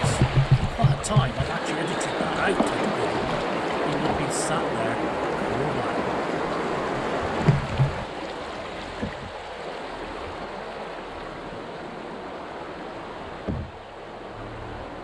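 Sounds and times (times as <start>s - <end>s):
short dull thumps: 0.0s - 3.4s, 7.4s - 8.1s, 9.0s - 9.4s, 13.4s - 13.8s
rushing river rapid water: 0.0s - 15.0s.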